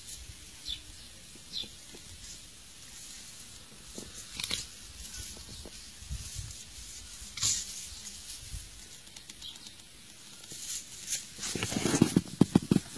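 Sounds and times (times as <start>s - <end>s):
rustling in grass: 0.0s - 12.9s.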